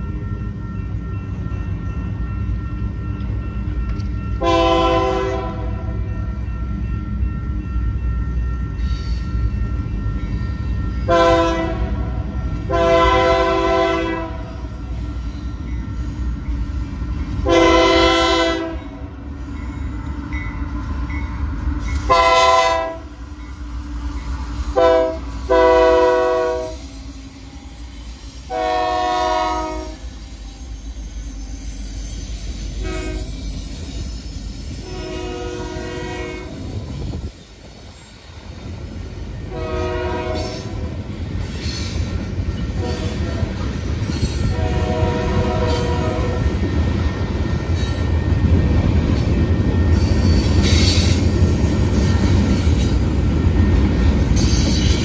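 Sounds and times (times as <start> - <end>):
diesel locomotive low rumble: 0.0 - 55.0
locomotive air horn blasts: 4.4 - 6.0, 11.1 - 14.7, 17.4 - 18.9, 22.1 - 23.1, 24.7 - 26.9, 28.5 - 30.1, 32.8 - 33.4, 34.8 - 36.7, 39.5 - 40.9, 42.8 - 43.5, 44.5 - 46.5.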